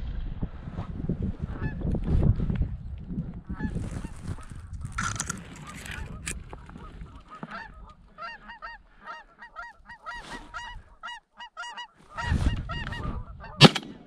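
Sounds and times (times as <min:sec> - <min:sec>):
branches rustling on microphone: 0:03.5 - 0:08.6
geese honking: 0:05.6 - 0:13.8.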